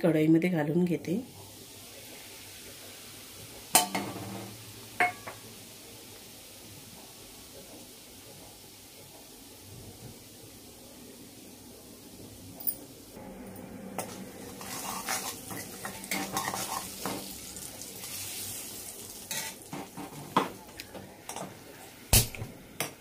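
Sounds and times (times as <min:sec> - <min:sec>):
oil sizzling: 0:01.0 - 0:23.0
ladle scraping spices in a pan: 0:14.0 - 0:17.4.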